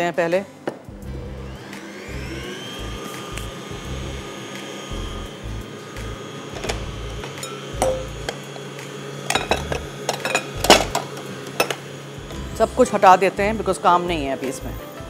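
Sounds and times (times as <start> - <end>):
stand mixer humming: 1.0 - 14.4
clinks and knocks in bowl: 7.2 - 8.1, 9.3 - 11.0.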